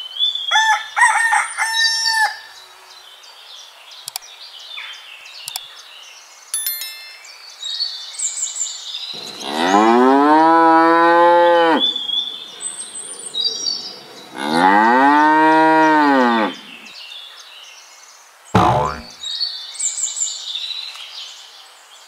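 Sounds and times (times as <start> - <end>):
faint high chirping: 6.6 - 8.6
cow mooing: 9.3 - 12.0, 14.4 - 16.7.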